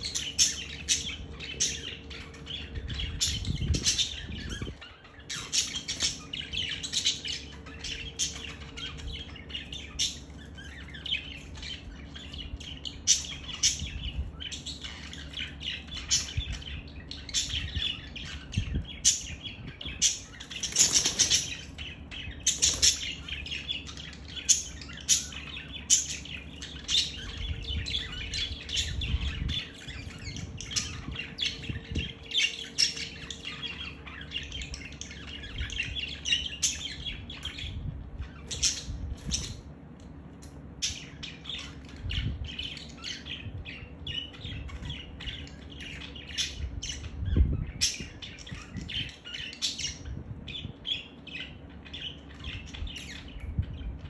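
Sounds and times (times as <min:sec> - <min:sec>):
budgerigars chirping: 0:00.0 - 0:39.7, 0:40.8 - 0:54.0
wings flapping: 0:20.6 - 0:21.5.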